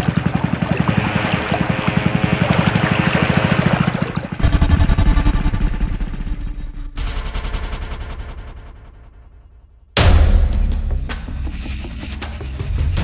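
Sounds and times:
small engine running: 0.0 - 8.8.

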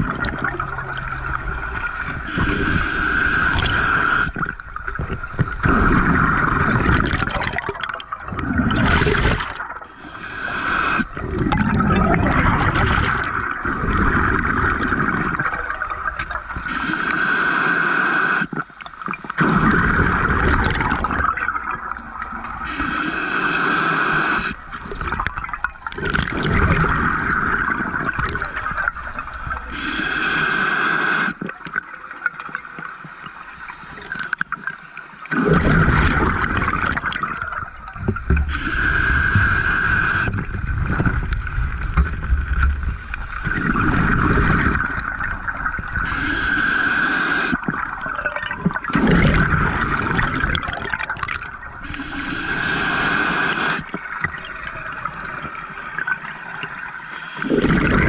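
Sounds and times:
exhaled bubbles gurgling underwater: 0.0 - 58.0
regulator hiss: 1.7 - 4.4, 10.0 - 11.1, 22.7 - 24.6, 29.6 - 31.4, 38.4 - 40.4, 46.0 - 47.6, 51.8 - 53.9.

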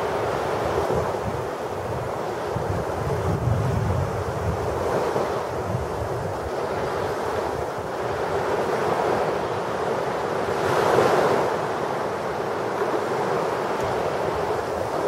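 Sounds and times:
small waves washing up a beach: 0.0 - 15.0.

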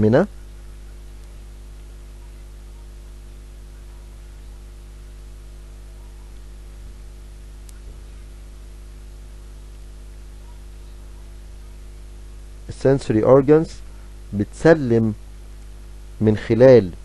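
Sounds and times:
background hiss: 0.0 - 2.4, 9.7 - 17.0
electrical mains hum: 0.0 - 17.0.

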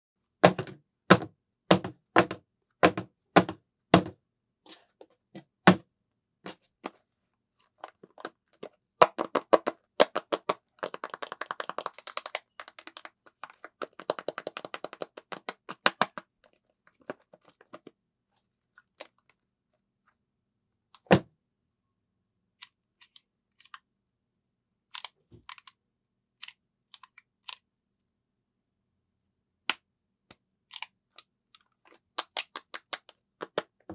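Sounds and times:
fingernails tapping cardboard: 0.4 - 4.1
knocks on cardboard box: 0.4 - 4.2.

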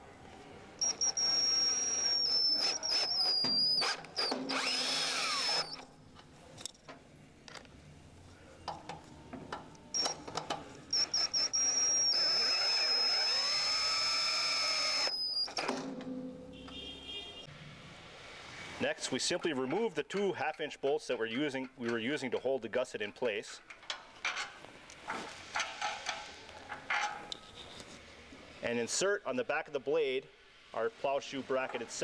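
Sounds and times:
cordless drill driving screws into steel: 0.8 - 5.9, 10.9 - 15.7.

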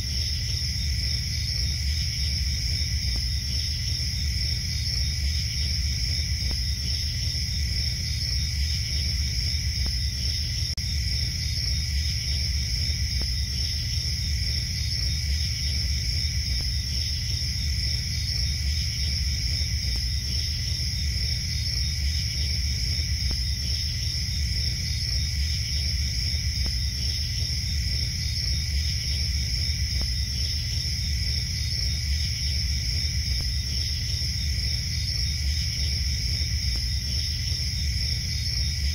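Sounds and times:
crickets chirping: 0.0 - 38.9.

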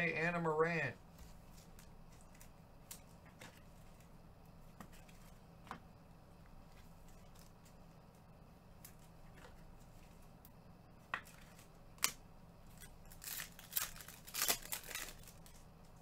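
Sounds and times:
cards clicking and rustling: 11.2 - 15.6.

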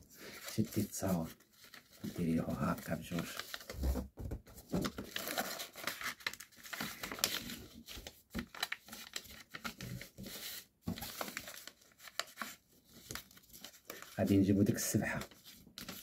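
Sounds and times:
paper folding and crinkling: 0.1 - 16.0.

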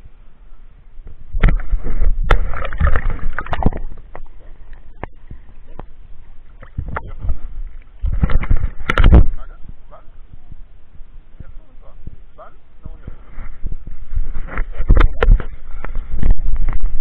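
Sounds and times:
water splashing and sloshing: 1.0 - 9.5.

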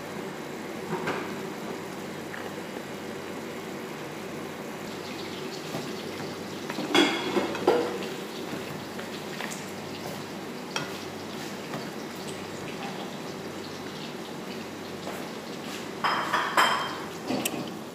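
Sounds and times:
food sizzling in frying pan: 4.5 - 17.9.

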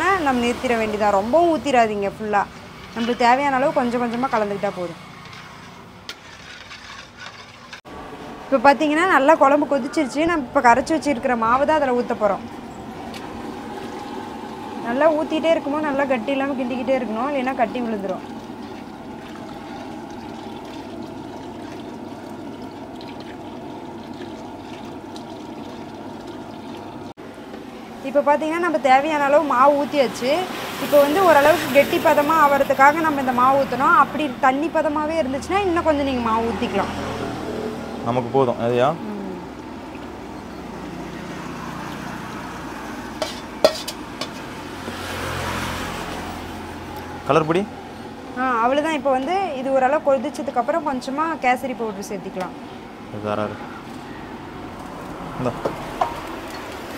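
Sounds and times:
pot of curry bubbling: 17.4 - 27.1
ladle stirring gravy in pot: 43.1 - 44.6
ladle clinking against pot: 43.2 - 44.5.

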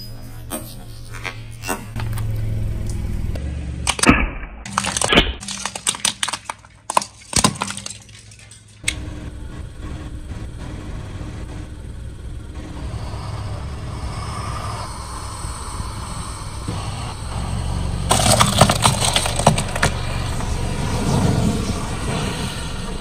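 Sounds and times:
brittle cracks and snaps: 3.9 - 9.0, 18.1 - 20.0
car tyre rolling with low rumble: 8.8 - 23.0.

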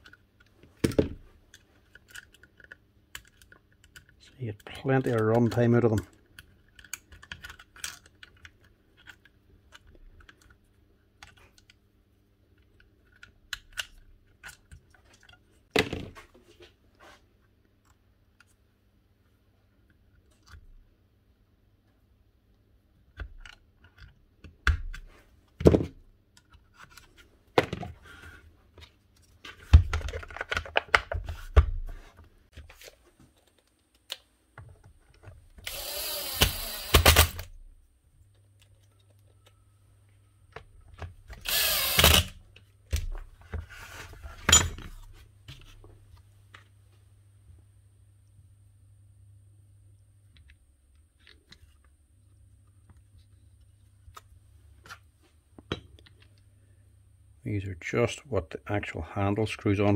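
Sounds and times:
small clicks and knocks of tool parts: 0.0 - 11.8, 12.5 - 15.4, 23.1 - 25.1, 28.8 - 31.2.

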